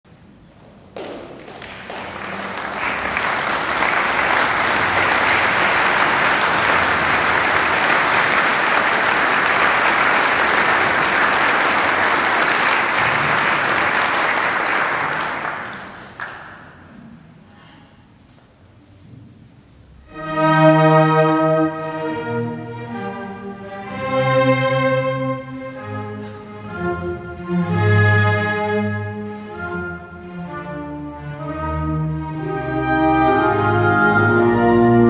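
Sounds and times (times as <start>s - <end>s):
audience applauding: 1.0s - 16.9s.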